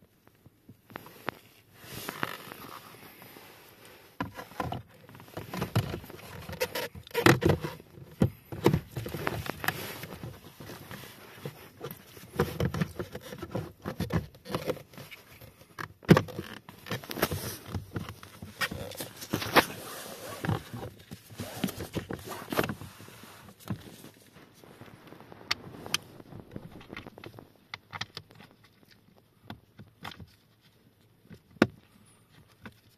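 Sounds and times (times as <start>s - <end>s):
rustling: 0.2s - 32.9s
plastic parts knocking and clicking: 4.2s - 10.8s.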